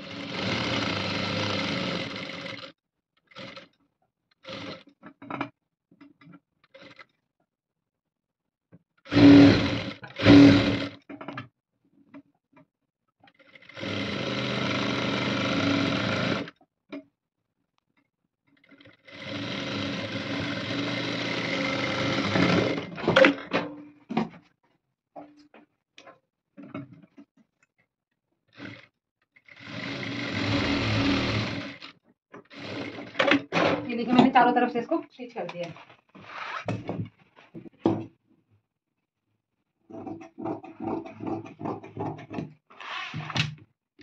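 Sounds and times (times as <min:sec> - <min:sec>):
sewing machine stitching: 0:00.0 - 0:02.7, 0:03.3 - 0:03.8, 0:04.4 - 0:05.5, 0:06.6 - 0:07.1, 0:09.1 - 0:11.3, 0:13.3 - 0:16.6, 0:18.6 - 0:23.7, 0:28.5 - 0:34.5.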